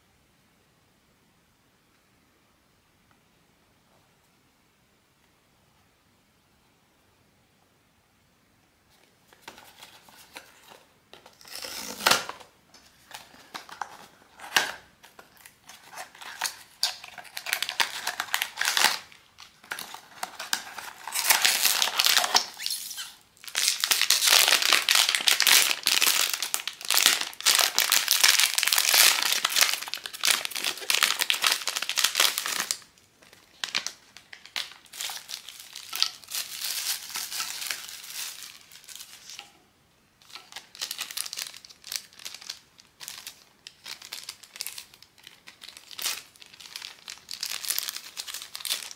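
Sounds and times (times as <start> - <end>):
crinkly wrapping crumpled and torn: 9.3 - 39.6, 40.2 - 48.9.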